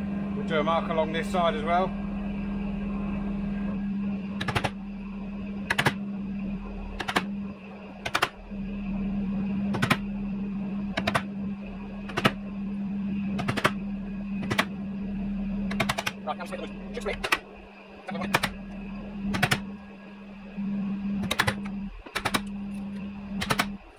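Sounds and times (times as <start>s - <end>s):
steady low hum: 0.0s - 23.9s.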